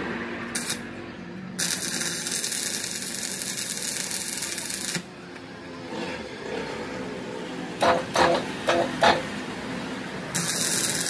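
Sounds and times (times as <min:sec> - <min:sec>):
arc welding crackling hiss: 0:00.5 - 0:00.8, 0:01.6 - 0:05.1, 0:10.3 - 0:11.0.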